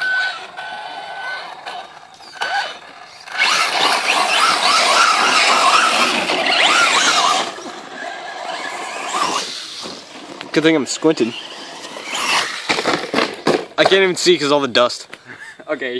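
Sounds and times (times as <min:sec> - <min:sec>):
electric motor whining: 0:00.0 - 0:13.3.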